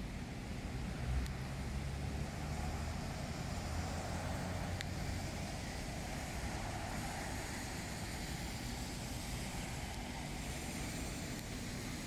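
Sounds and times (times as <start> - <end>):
car traffic on wet roads: 0.0 - 12.0.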